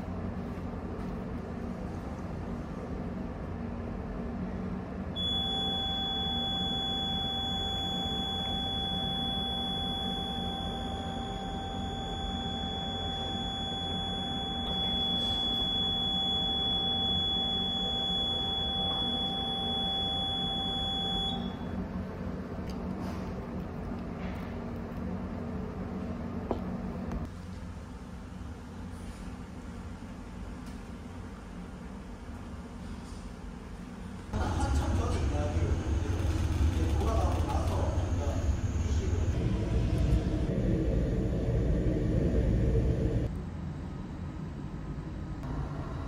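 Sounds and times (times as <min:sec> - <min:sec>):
low background hum: 0:00.0 - 0:46.0
high-pitched electronic alarm tone: 0:05.2 - 0:21.8.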